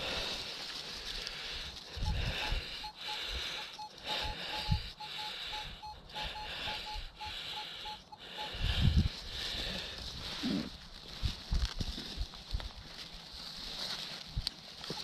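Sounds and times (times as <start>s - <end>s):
metal detector beeping: 1.9s - 9.0s.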